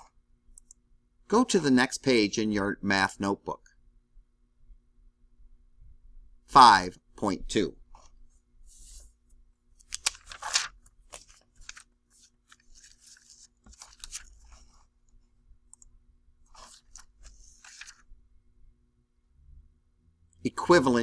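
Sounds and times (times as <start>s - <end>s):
paper rustling: 8.0s - 9.2s, 9.8s - 14.9s, 16.5s - 18.1s.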